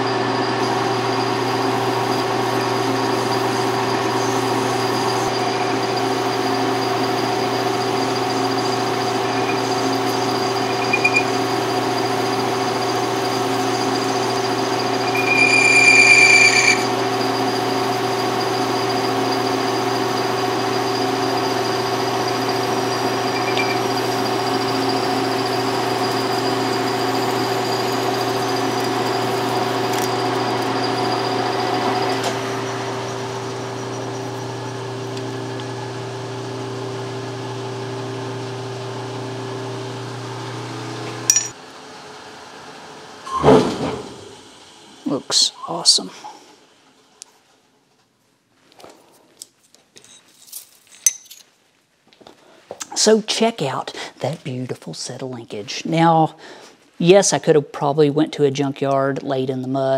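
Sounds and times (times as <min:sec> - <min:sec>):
parting tool squealing: 0:00.0 - 0:34.9, 0:43.3 - 0:44.4
metal lathe running: 0:00.0 - 0:46.0.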